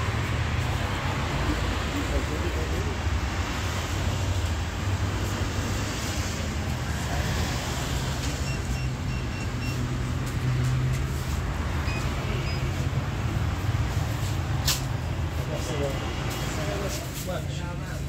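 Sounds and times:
vehicle engine and road rumble: 0:00.0 - 0:18.0
short electronic beeps: 0:08.4 - 0:09.9, 0:11.8 - 0:12.8.

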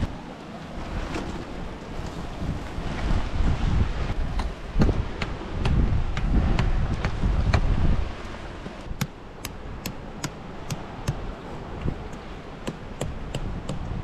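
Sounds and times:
wind buffeting microphone: 0:00.0 - 0:14.0
tent pegs tapped into stony ground: 0:08.8 - 0:11.2.

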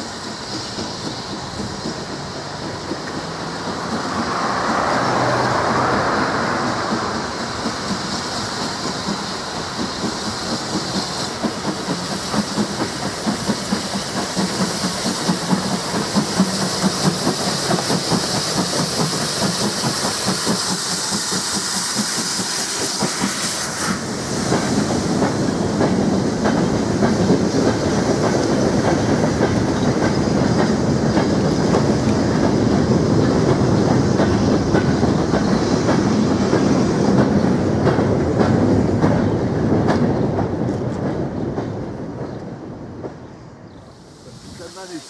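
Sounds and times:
freight train rumbling: 0:00.0 - 0:45.0
train wheel clicks: 0:00.2 - 0:43.2.

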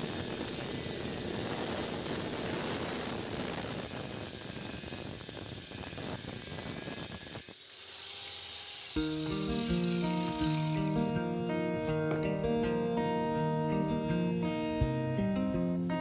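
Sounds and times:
angle grinder cutting metal: 0:00.0 - 0:11.4.

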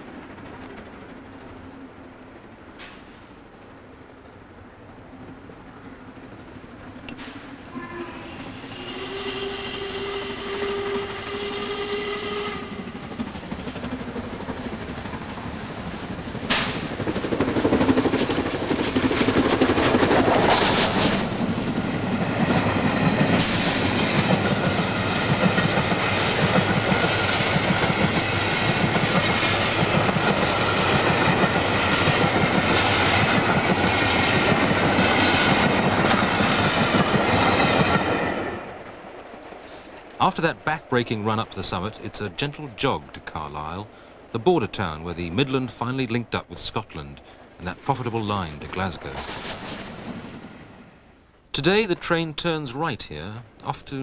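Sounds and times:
train running past: 0:00.0 - 0:54.0
steam locomotive whistle: 0:07.7 - 0:13.0.

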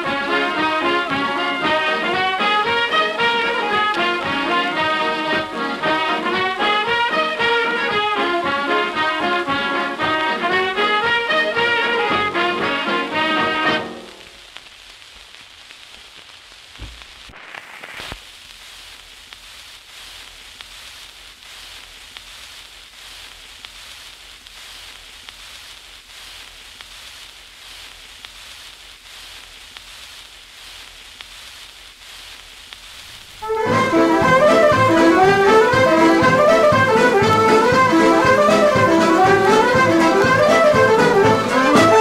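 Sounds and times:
brass dance-band music: 0:00.0 - 0:14.4, 0:33.4 - 0:42.0
record surface hiss and crackle: 0:00.0 - 0:42.0.

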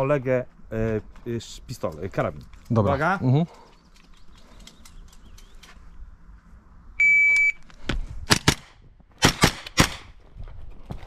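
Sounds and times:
shot timer beep: 0:07.0 - 0:07.6
rapid gunshots: 0:08.3 - 0:10.1.

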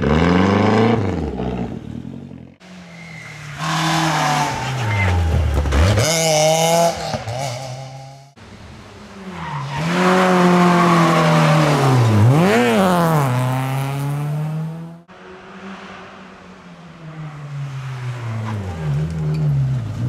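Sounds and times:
rally car engine revving: 0:03.0 - 0:08.4, 0:09.4 - 0:16.0.

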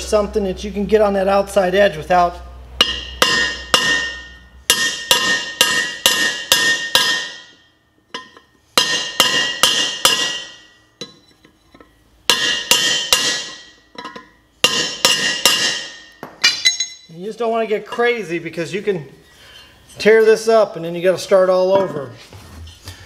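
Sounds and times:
hammer striking steel chisel: 0:02.8 - 0:17.1.

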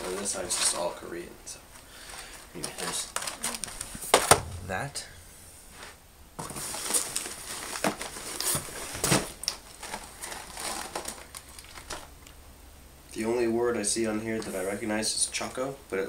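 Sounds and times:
packaging crinkling and rustling: 0:02.3 - 0:04.3, 0:06.4 - 0:12.4.

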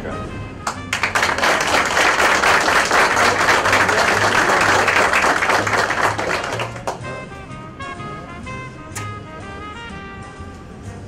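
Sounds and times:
group applauding: 0:00.6 - 0:07.1.

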